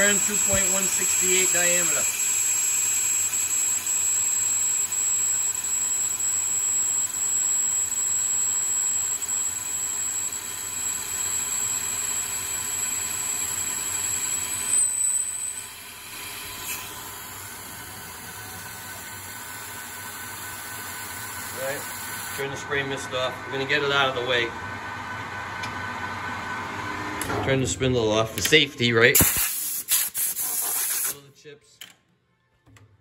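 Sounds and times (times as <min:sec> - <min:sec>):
lathe cutting squeal: 0:00.0 - 0:22.4
lathe spindle running: 0:00.0 - 0:26.8.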